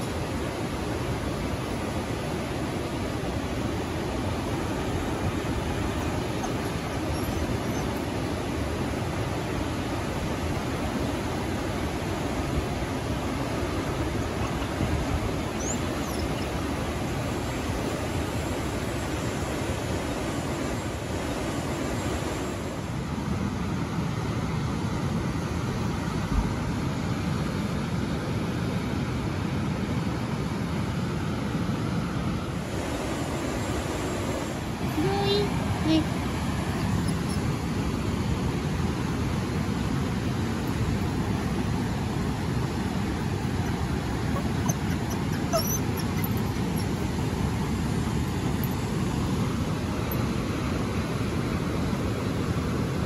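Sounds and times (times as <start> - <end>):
river rapids roaring: 0.0 - 53.0
dog whimpering faintly: 6.0 - 8.2, 14.2 - 16.8, 34.4 - 37.5, 43.2 - 48.9.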